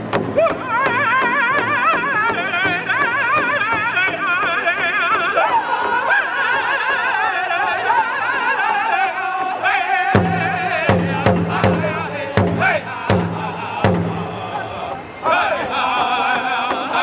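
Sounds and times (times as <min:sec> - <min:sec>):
heavy big drum strikes: 0:00.0 - 0:06.1, 0:10.0 - 0:15.2
group singing in high voices: 0:00.4 - 0:17.0.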